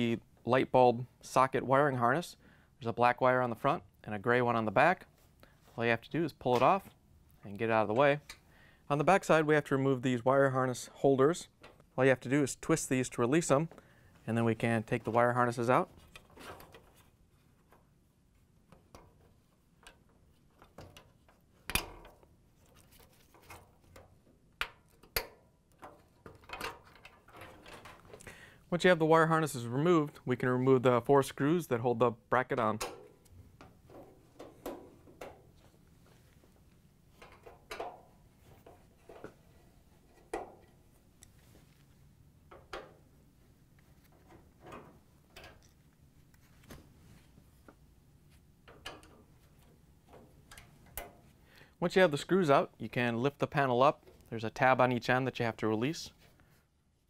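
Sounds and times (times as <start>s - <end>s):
cables being handled: 13.6s - 28.3s, 33.0s - 43.0s, 43.6s - 51.4s.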